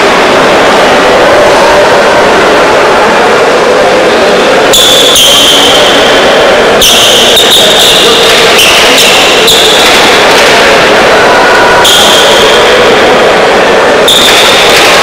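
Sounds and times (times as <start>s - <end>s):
loud indoor court noise: 0.0s - 15.0s
high-pitched squeaks: 4.7s - 12.9s.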